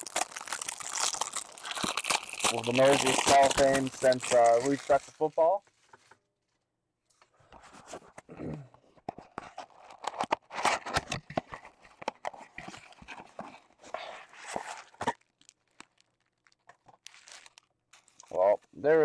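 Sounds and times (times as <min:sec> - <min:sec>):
cardboard box tearing: 0:00.0 - 0:05.0.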